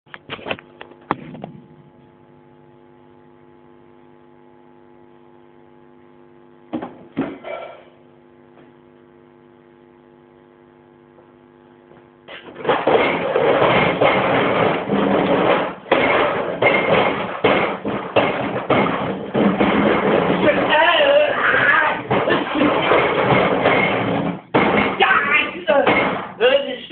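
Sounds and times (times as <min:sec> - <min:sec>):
amplifier hum: 0:00.1 - 0:26.9
knocks: 0:06.7 - 0:07.6, 0:12.5 - 0:25.2, 0:25.8 - 0:26.4.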